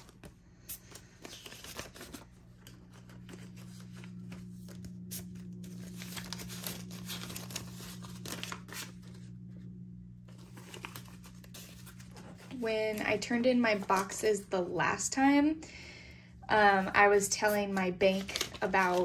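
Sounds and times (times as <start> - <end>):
banknotes rustling: 0.0 - 9.4, 10.3 - 14.4, 16.6 - 19.0
steady low hum: 0.0 - 19.0.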